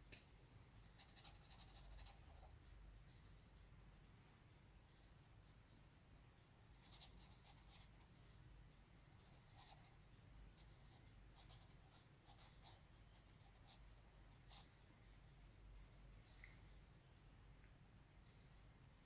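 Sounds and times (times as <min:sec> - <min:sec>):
felt-tip marker scratching on paper: 0:01.0 - 0:02.5, 0:06.8 - 0:08.1, 0:09.2 - 0:10.0.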